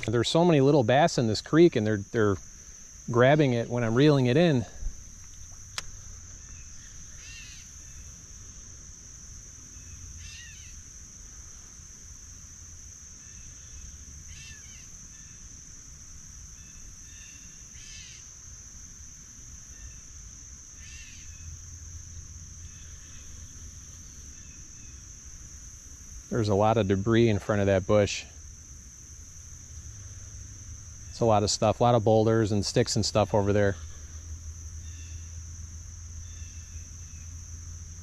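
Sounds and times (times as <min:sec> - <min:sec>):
crickets chirping: 0:00.0 - 0:38.0
bird calling: 0:02.7 - 0:08.2, 0:09.8 - 0:10.8, 0:13.2 - 0:15.4.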